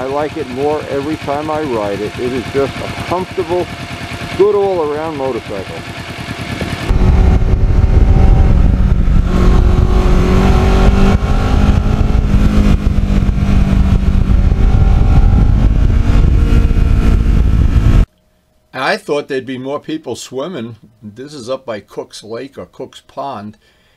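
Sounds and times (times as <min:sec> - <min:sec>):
motorcycle engine: 0:00.0 - 0:18.1
wind rumble: 0:06.4 - 0:18.1.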